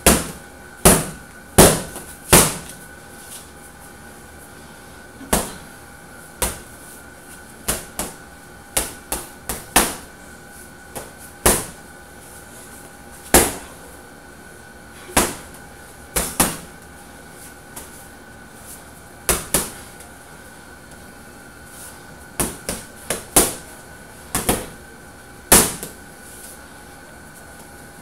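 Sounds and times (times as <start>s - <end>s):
gloves punching heavy bag: 0.0s - 2.8s.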